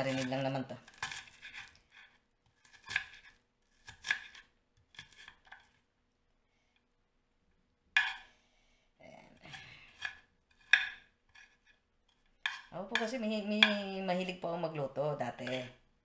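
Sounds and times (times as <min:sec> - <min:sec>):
knife chopping on wooden board: 0:02.6 - 0:05.5.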